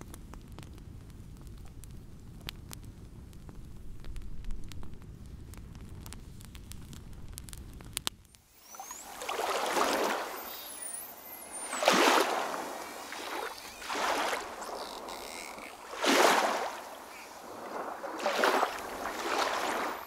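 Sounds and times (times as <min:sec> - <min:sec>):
water sloshing: 0:08.7 - 0:20.0.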